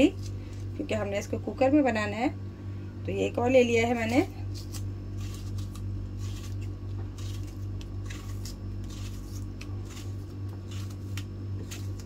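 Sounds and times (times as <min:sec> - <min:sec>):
steady low hum: 0:00.0 - 0:12.0
knife cutting tomato: 0:03.9 - 0:12.0.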